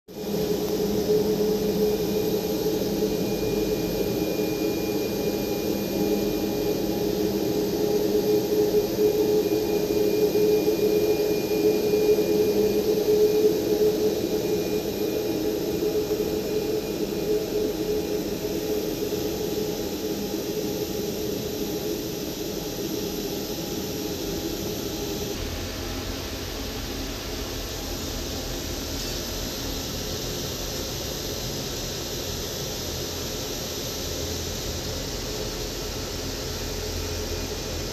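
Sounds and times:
jet engines whining: 0.2 - 25.7.

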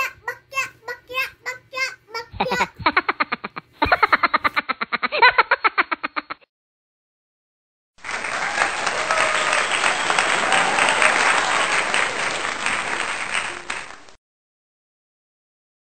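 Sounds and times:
crowd applause: 8.0 - 14.2.

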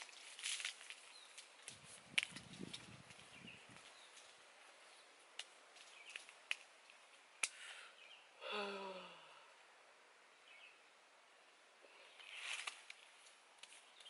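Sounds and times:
man groaning: 8.4 - 9.3.

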